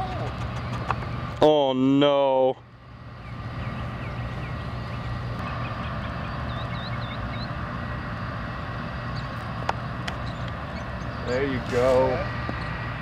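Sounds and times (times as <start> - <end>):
machinery humming: 0.0 - 13.0
bird chirps: 3.2 - 7.6, 10.2 - 11.3.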